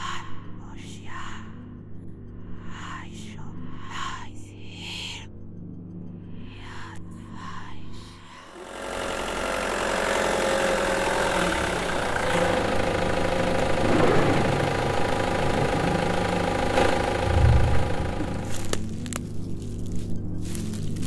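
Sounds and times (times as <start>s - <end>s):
car engine running: 8.5s - 21.0s
low thud: 17.2s - 18.3s.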